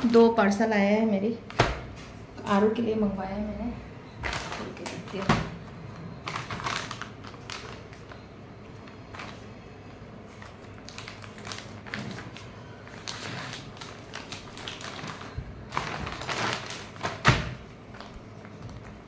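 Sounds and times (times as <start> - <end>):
plastic bag crinkling: 6.2 - 9.5, 10.3 - 19.0.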